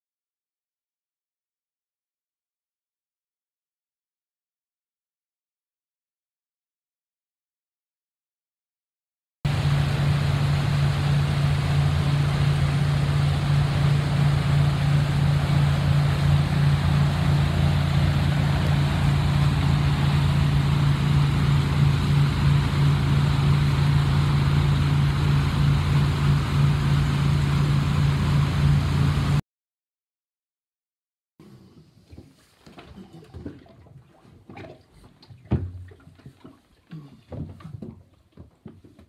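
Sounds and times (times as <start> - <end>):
boat engine droning: 9.5 - 29.4
wind and water noise: 9.5 - 29.4, 31.6 - 38.8.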